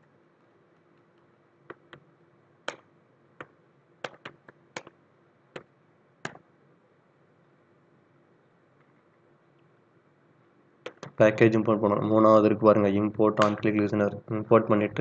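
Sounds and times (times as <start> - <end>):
faint steady hum: 0.0 - 15.0
keyboard key clicks: 10.8 - 11.2.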